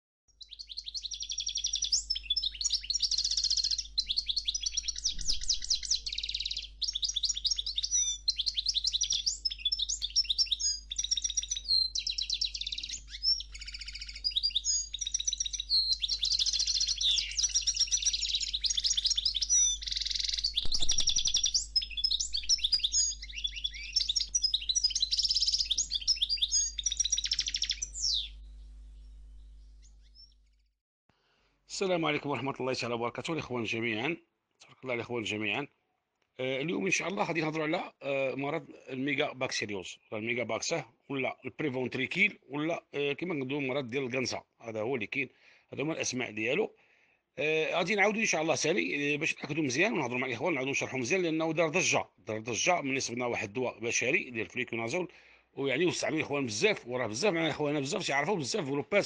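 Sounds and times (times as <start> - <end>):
finch singing: 0.3 - 30.5.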